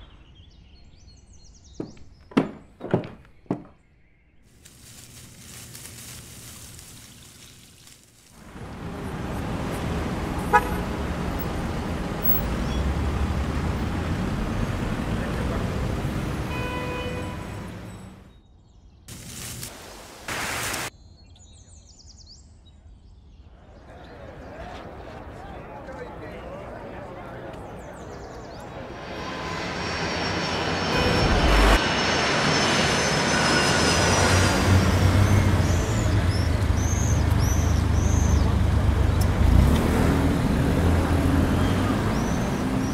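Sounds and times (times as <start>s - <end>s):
low rumble of traffic: 4.5s - 18.4s, 23.4s - 42.9s
engine noise rushing: 8.3s - 18.3s, 23.9s - 42.9s
car horn toot: 10.4s - 11.0s, 16.4s - 17.9s, 30.9s - 31.8s
low hum: 27.7s - 36.4s.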